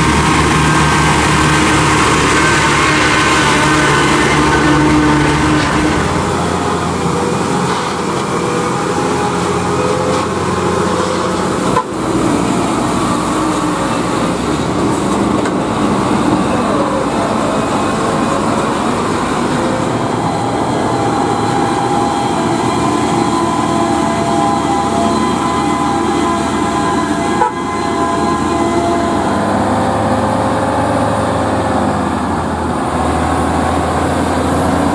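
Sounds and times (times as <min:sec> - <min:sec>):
diesel truck engine running: 0:00.0 - 0:34.9.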